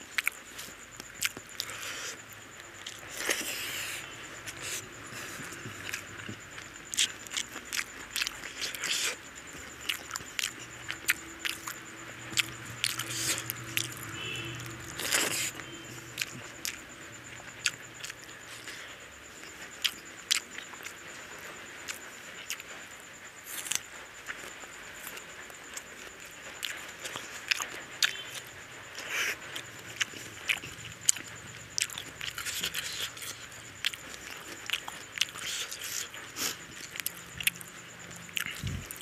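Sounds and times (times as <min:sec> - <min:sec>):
wet chewing and lip smacks: 0:04.6 - 0:14.0, 0:19.6 - 0:20.9, 0:29.0 - 0:39.0.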